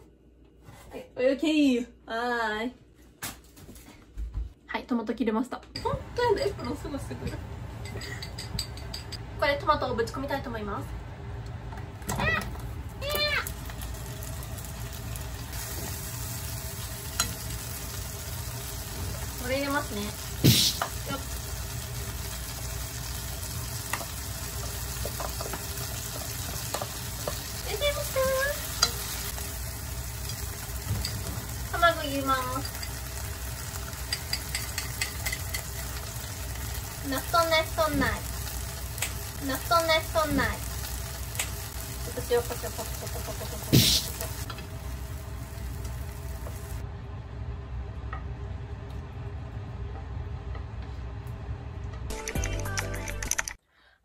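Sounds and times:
food sizzling in a frying pan: 0:12.2 - 0:46.8
chopsticks tapping and scraping: 0:23.9 - 0:27.5, 0:34.1 - 0:35.8
chopsticks tapping: 0:34.1 - 0:35.7.

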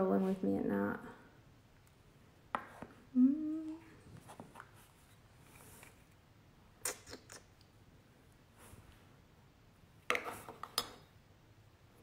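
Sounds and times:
woman humming: 0:03.1 - 0:03.9.

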